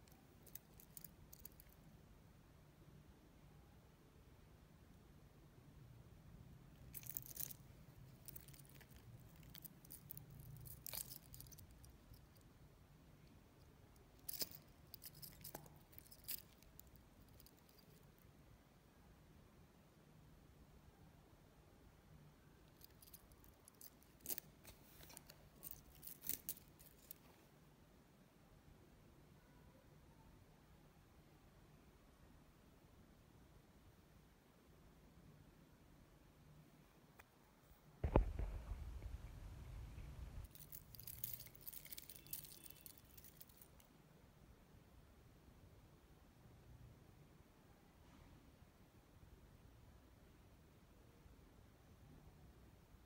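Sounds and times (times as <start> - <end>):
faint low hum: 0.0 - 53.0
watch bracelet links clicking: 7.0 - 12.2, 14.2 - 17.9, 22.9 - 27.2, 40.0 - 43.7.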